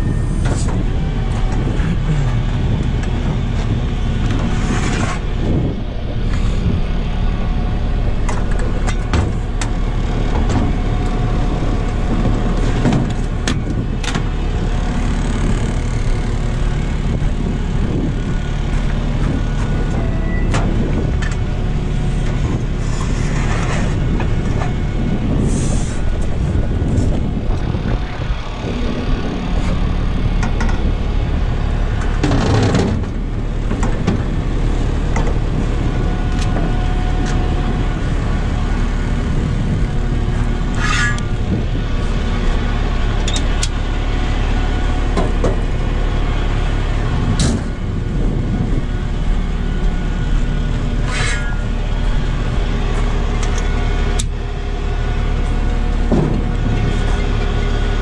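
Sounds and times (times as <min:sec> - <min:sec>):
tow truck engine running: 0:00.0 - 0:58.0.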